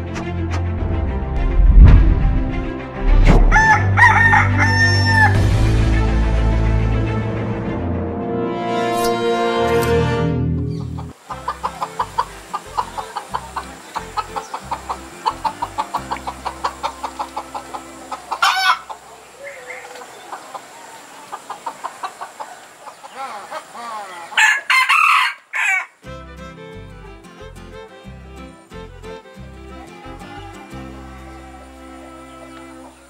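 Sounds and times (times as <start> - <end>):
rooster crowing: 3.4 - 5.4, 15.2 - 21.4, 23.1 - 26.0, 29.7 - 33.0
fowl clucking: 10.6 - 26.7, 29.2 - 33.0.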